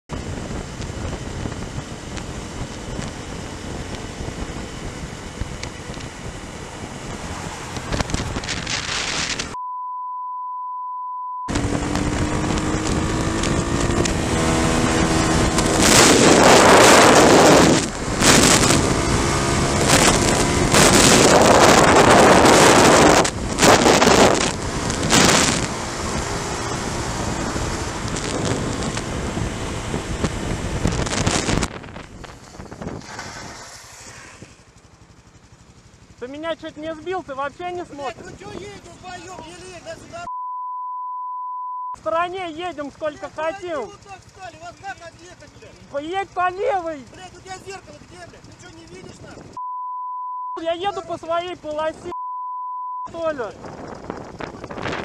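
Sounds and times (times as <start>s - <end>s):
wind rushing over microphone: 0.1s - 9.6s, 11.5s - 34.7s, 53.4s - 55.0s
dirt bike engine revving: 0.3s - 9.6s, 11.5s - 40.2s
steady bleep: 9.5s - 11.6s, 40.2s - 42.0s, 49.6s - 50.7s, 52.1s - 53.2s.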